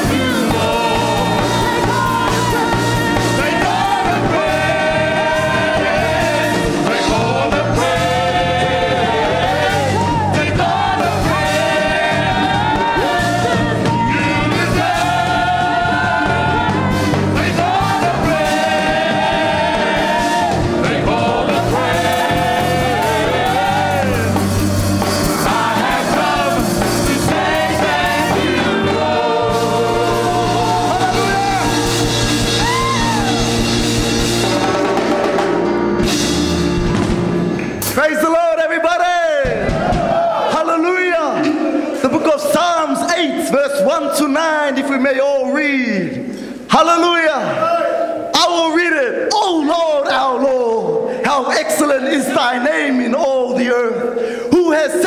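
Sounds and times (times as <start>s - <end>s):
steady bass line: 0.0s - 37.8s
band playing: 0.0s - 42.0s
choir singing gospel song: 0.0s - 45.0s.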